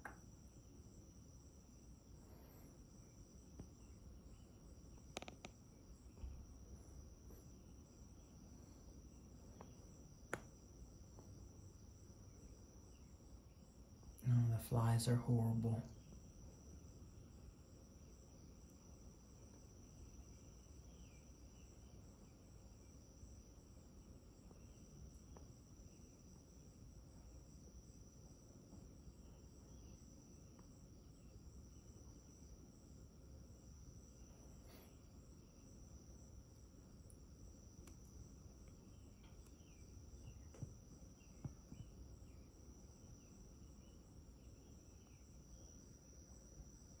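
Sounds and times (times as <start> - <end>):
high-pitched insect trill: 0.0 - 47.0
faint chirps: 1.8 - 26.4, 33.9 - 36.4, 37.0 - 47.0
small clicks: 5.1 - 5.6.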